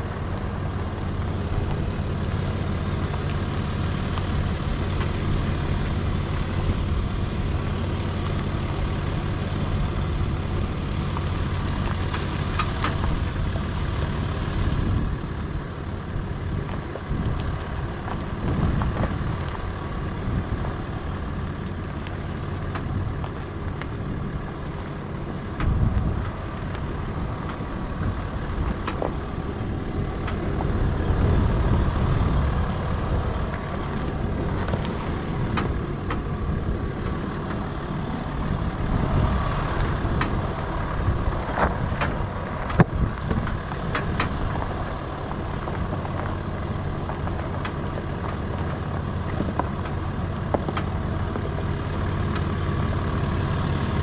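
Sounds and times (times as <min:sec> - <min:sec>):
tyres crunching over stones: 0:00.0 - 0:15.3, 0:16.5 - 0:54.0
car engine running: 0:00.0 - 0:54.0
gravel clicks: 0:00.0 - 0:54.0.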